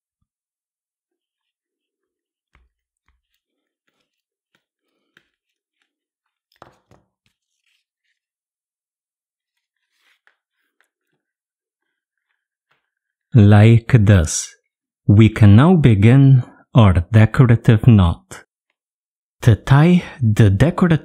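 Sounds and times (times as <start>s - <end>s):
cord rustling and clicking: 1.2s - 8.3s.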